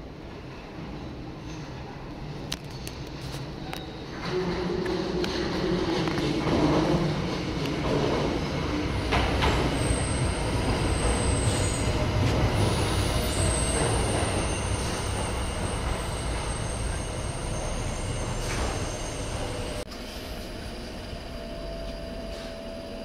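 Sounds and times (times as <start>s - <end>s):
train wheels rumbling on rail: 0.0s - 23.0s
high-pitched brake squeal: 9.6s - 12.0s, 12.6s - 23.0s.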